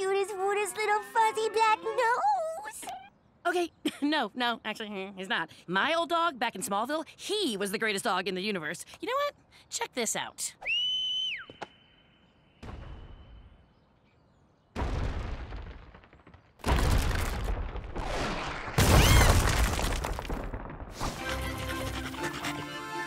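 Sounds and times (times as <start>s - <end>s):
crash of breaking stone: 14.8s - 21.2s.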